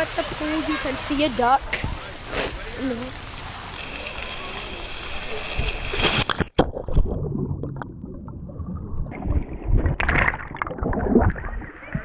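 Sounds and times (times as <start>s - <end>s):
muffled underwater bubbles: 5.3s - 12.0s
splash into water: 5.4s - 12.0s.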